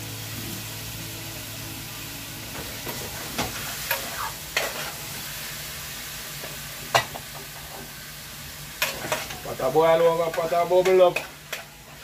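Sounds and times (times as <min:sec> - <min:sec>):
meat sizzling in frying pan: 0:00.0 - 0:12.0.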